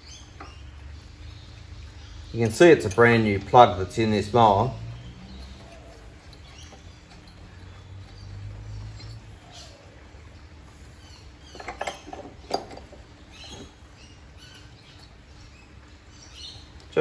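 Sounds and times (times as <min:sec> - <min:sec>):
faint metal scraping: 0:02.0 - 0:10.0
light metal clinks from spanner: 0:02.3 - 0:09.8, 0:11.4 - 0:13.8.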